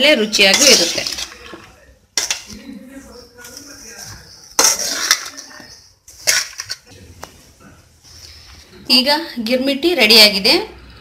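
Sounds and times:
spoon scraping a metal bowl: 0.3 - 2.6, 3.5 - 6.9.

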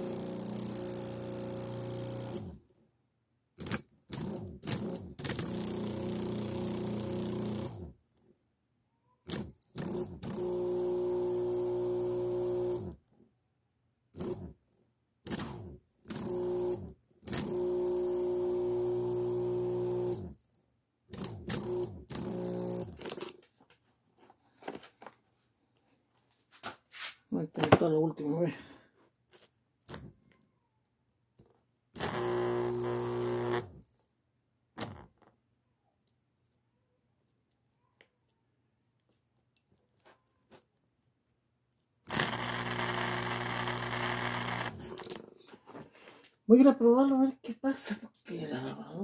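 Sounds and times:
pump motor humming and winding down: 0.0 - 2.6, 3.6 - 7.9, 9.3 - 13.0, 14.2 - 14.5, 15.3 - 20.4, 21.1 - 23.2, 32.0 - 33.8, 42.1 - 45.2.

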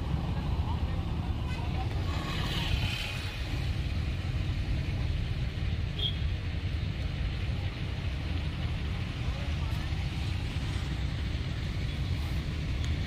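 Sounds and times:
bus engine rumble: 0.0 - 13.0
road noise: 0.0 - 13.0.

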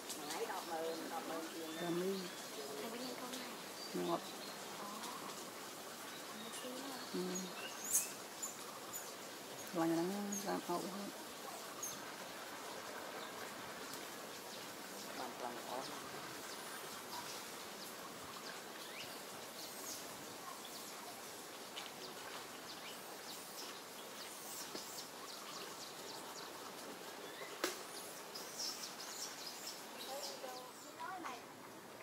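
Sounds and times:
steady background hiss: 0.0 - 32.0
bird chirps: 6.4 - 10.6.

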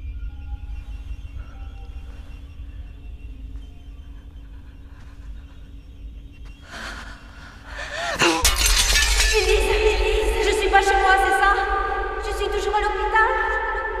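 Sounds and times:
eerie drone: 0.0 - 14.0
crashing shattering burst: 8.4 - 9.8.

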